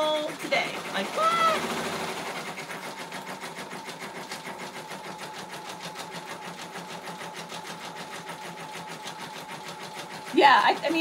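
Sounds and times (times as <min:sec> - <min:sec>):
rapid ticking of stitches: 0:00.0 - 0:11.0
steady motor hum: 0:00.0 - 0:11.0.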